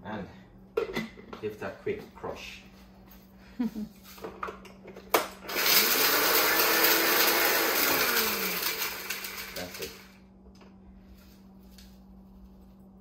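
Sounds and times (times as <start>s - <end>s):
blender motor whirring: 5.4s - 10.2s.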